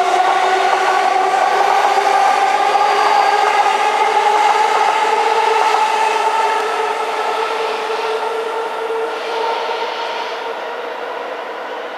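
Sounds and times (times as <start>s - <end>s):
train wheels rolling: 0.0s - 8.3s
electric train whine: 0.0s - 11.9s.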